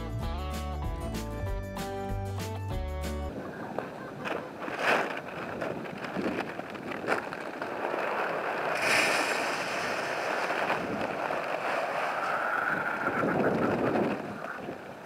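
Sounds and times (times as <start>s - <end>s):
grain pouring into metal feeder: 8.8s - 10.6s.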